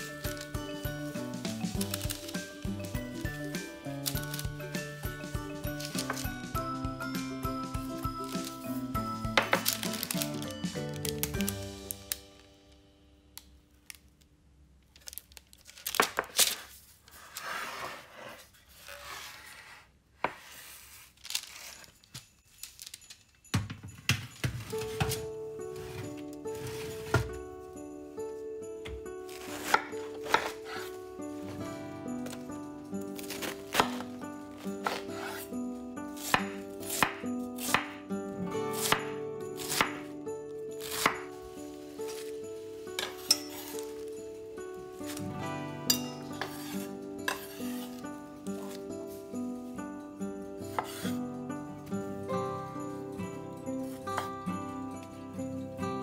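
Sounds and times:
soft background music: 0.0 - 13.7, 20.5 - 56.0
material tearing and crinkling: 14.9 - 17.5, 20.9 - 23.2
knife chopping on cutting board: 50.7 - 51.1.

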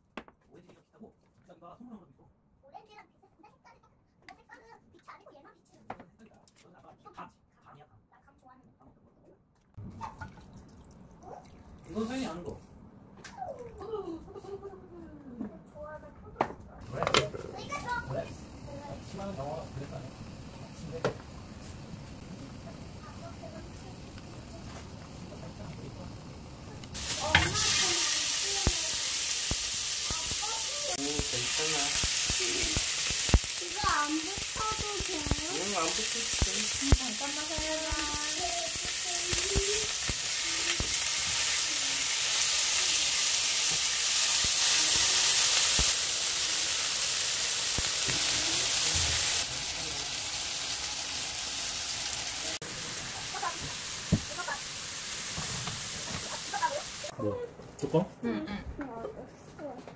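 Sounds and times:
meat sizzling in a grill pan: 16.9 - 57.1.

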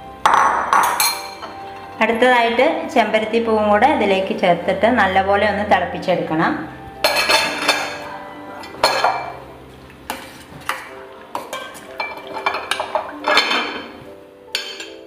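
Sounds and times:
spoon clinking against metal pot: 0.3 - 1.9, 7.0 - 9.4, 10.1 - 15.0.

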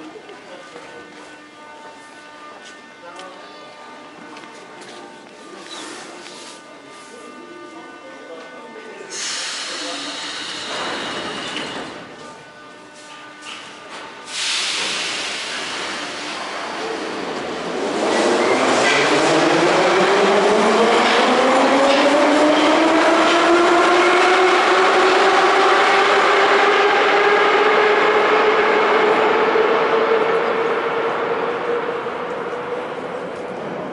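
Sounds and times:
train brake hiss: 9.1 - 11.9, 14.2 - 16.4.

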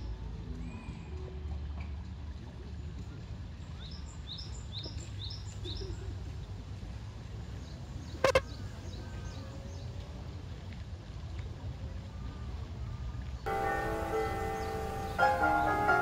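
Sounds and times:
songbird chirping: 13.2 - 16.0.

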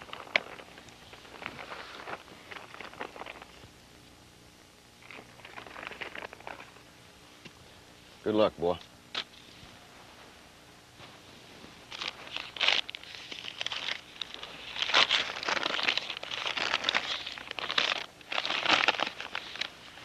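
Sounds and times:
paper crinkling and rustling: 0.0 - 3.7, 5.0 - 6.8, 11.0 - 20.0.

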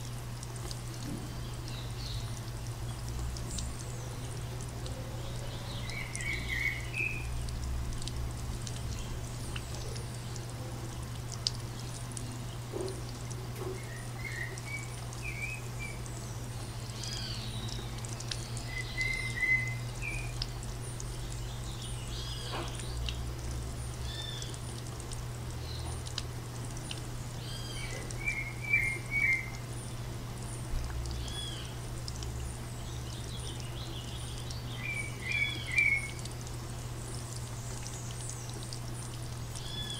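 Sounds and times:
low steady hum: 0.0 - 39.9
running water: 0.0 - 39.9
birds chirping: 1.2 - 8.1, 11.7 - 24.8, 25.5 - 31.9, 32.5 - 36.3.

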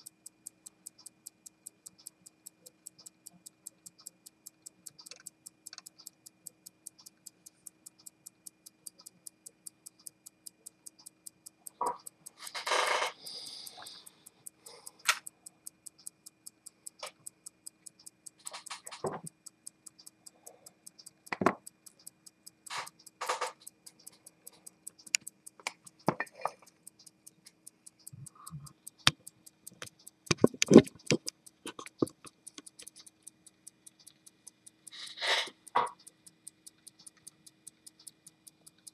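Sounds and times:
pocket watch ticking: 0.0 - 38.9
loud irregular clicks and knocks: 17.0 - 20.0, 22.7 - 26.7, 29.0 - 33.1.

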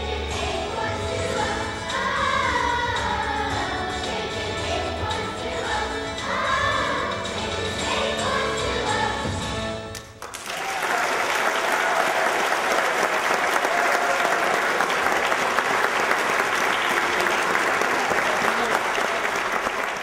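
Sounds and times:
music: 0.0 - 10.3
audience applauding: 9.9 - 20.0.

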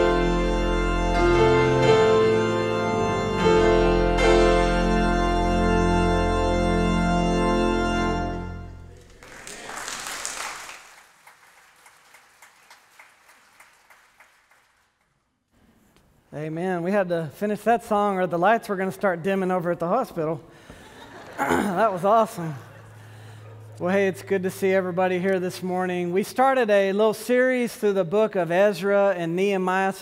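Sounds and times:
church organ chords: 0.0 - 9.3, 18.8 - 27.6
audience applause: 8.8 - 14.9.

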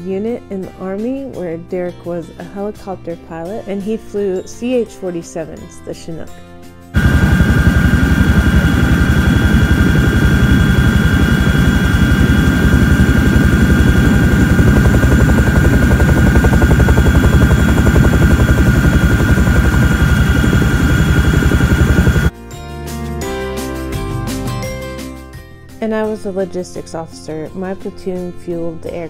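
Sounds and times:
helicopter rotor beat: 7.0 - 22.3
turbine and gearbox whine: 7.0 - 22.3.

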